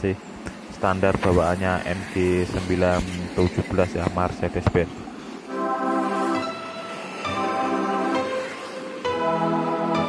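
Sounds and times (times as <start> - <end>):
music of sustained chords: 5.5 - 10.0.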